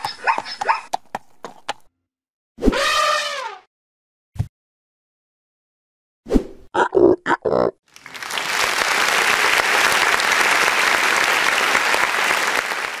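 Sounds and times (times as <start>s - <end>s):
cartoon animal grunt: 6.7s - 7.8s
crowd applause: 7.9s - 13.0s.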